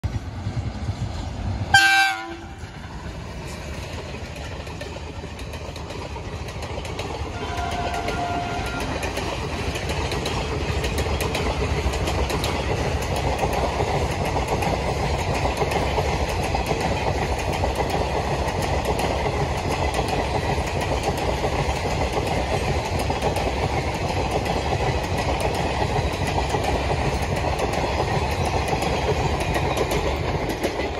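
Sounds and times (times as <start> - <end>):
train rumble and wheel clatter: 0.0 - 30.9
train horn blast: 1.7 - 2.6, 7.3 - 9.0.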